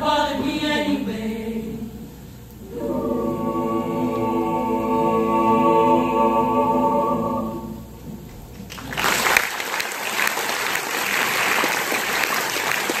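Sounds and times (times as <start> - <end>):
choir holding a chord: 0.0 - 8.1
audience applause: 8.5 - 13.0.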